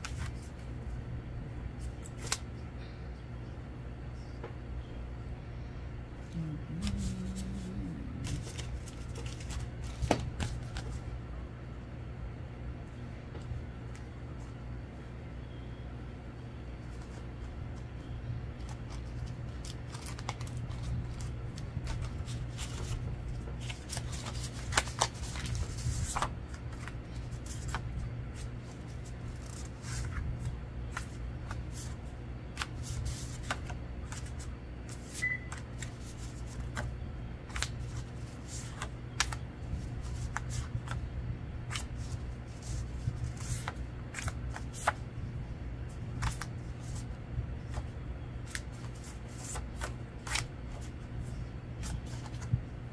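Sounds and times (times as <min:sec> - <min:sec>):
low hum: 0:00.0 - 0:52.9
cards sliding and clicking: 0:01.8 - 0:02.5, 0:47.7 - 0:50.9.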